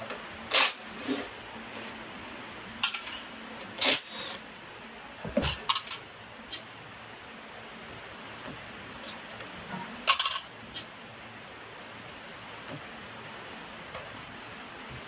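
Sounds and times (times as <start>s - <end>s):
faint steady hum: 0.0s - 15.0s
metal parts and tools clinking: 2.8s - 4.4s, 5.4s - 6.0s, 9.7s - 10.5s.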